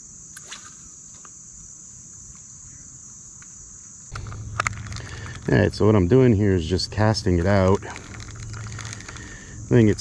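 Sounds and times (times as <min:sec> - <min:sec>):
high-pitched insect chorus: 0:00.0 - 0:10.0
low rumble: 0:04.1 - 0:10.0.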